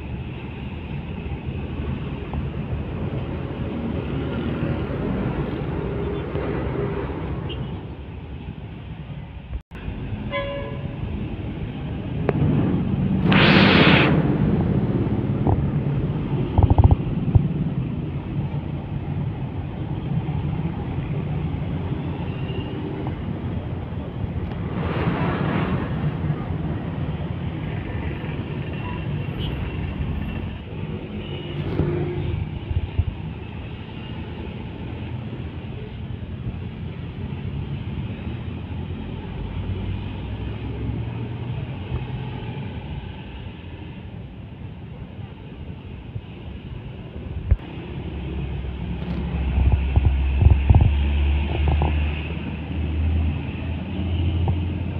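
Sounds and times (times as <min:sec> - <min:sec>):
road traffic rumble: 0:00.0 - 0:54.9.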